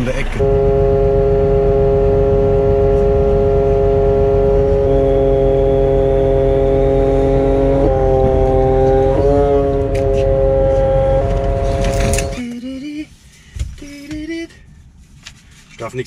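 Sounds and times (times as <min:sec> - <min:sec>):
crane engine and hydraulics humming: 0:00.0 - 0:12.4.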